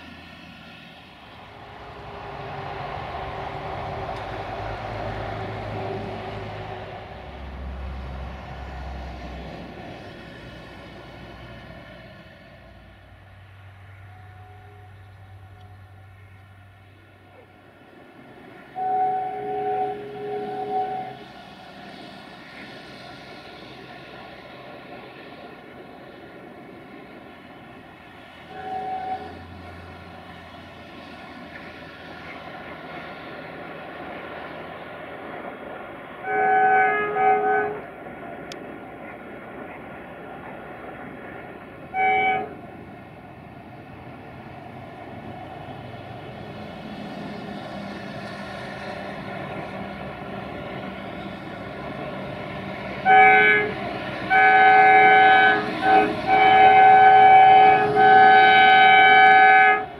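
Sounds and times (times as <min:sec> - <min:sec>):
locomotive horn blasts: 0:13.8 - 0:16.3, 0:18.8 - 0:21.3, 0:28.5 - 0:29.6, 0:36.2 - 0:37.9, 0:41.9 - 0:42.6, 0:53.0 - 0:59.9.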